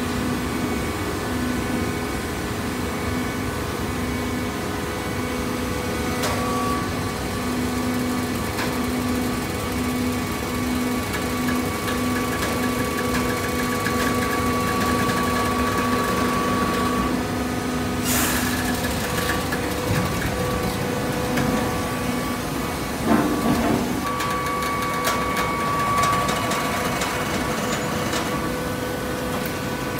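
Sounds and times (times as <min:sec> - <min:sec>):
hydraulic baler humming: 0:06.0 - 0:29.9.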